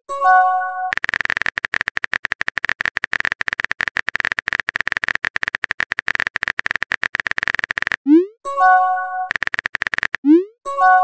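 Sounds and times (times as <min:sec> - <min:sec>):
phone keyboard typing clicks: 0:00.9 - 0:08.1, 0:09.3 - 0:10.4.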